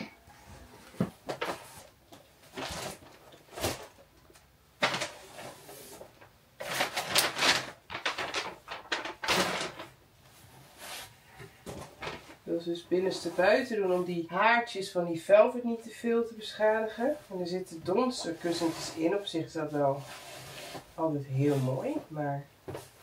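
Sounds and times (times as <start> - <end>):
packing paper rustling: 1.2 - 11.1, 11.7 - 12.5.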